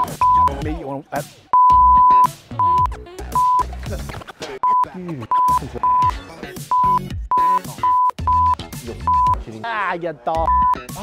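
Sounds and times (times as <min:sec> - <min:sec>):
censor bleeps: 0:00.0 - 0:00.6, 0:01.6 - 0:03.7, 0:05.4 - 0:06.1, 0:06.7 - 0:09.4, 0:10.4 - 0:10.8.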